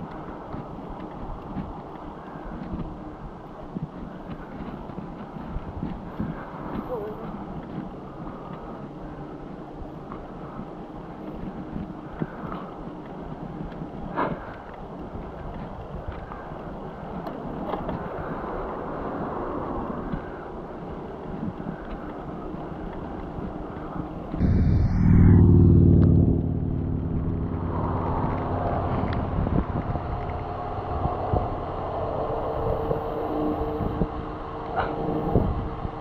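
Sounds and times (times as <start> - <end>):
bicycle tyres rolling on asphalt: 0.0 - 24.4, 26.7 - 36.0
wind noise: 0.0 - 36.0
vehicle engine passing by: 24.4 - 35.5.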